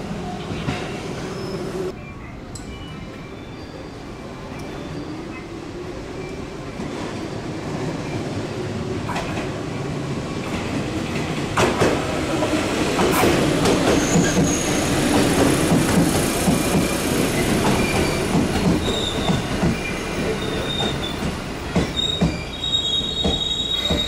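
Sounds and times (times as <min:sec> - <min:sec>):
electric train passing: 0:00.0 - 0:24.0
high brake squeal: 0:01.1 - 0:01.9, 0:02.7 - 0:05.5, 0:13.9 - 0:15.0, 0:16.5 - 0:24.0.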